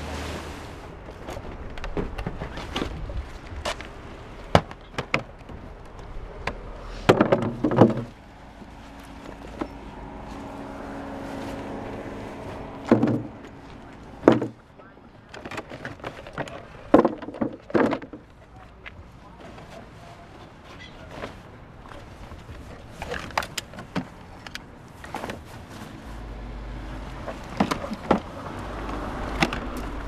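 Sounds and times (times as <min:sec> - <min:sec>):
plastic box knocks and clunks: 0:04.5 - 0:05.6, 0:06.4 - 0:08.2, 0:12.8 - 0:13.4, 0:14.2 - 0:14.6, 0:15.4 - 0:18.3.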